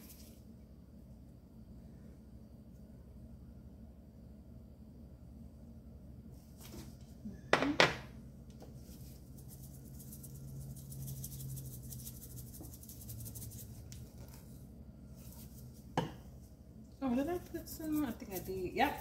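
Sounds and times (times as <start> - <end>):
seasoning rattling from a shaker: 0.0 - 0.4, 8.7 - 15.9, 17.3 - 19.0.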